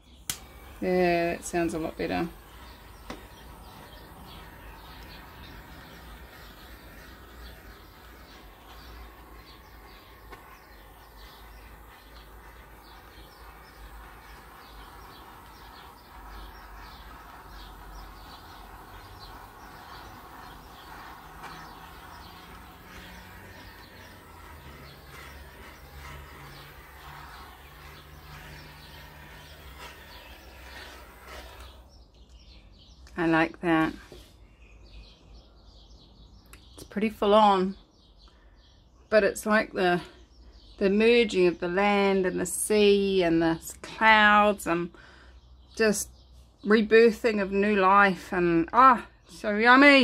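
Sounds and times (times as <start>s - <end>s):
butane torch hissing: 0.0s - 32.1s
birds chirping: 0.0s - 50.0s.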